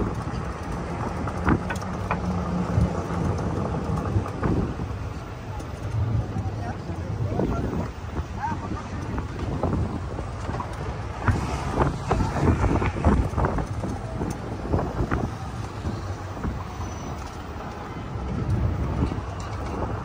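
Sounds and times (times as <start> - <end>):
wind buffeting microphone: 0.0 - 20.0.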